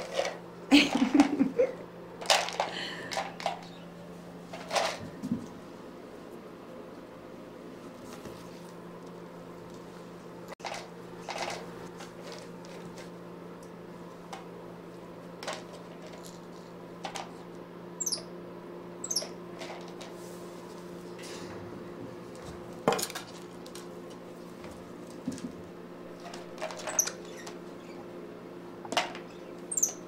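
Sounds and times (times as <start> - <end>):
steady low hum: 0.0 - 30.0
monkey squeaks: 18.0 - 18.3, 19.0 - 19.4, 26.9 - 28.0, 29.3 - 30.0.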